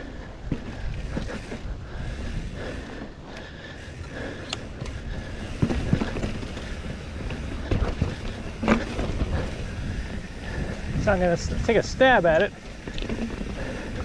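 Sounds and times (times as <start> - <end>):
bike tyres rumbling on dirt: 0.0 - 14.0
bike knocks and rattles: 0.4 - 2.2, 4.0 - 14.0
wind on microphone: 5.1 - 14.0.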